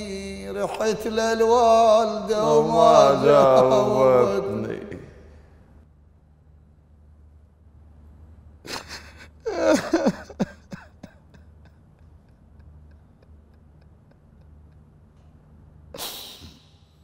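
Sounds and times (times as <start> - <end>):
man sobbing: 1.6 - 4.8, 8.7 - 14.9.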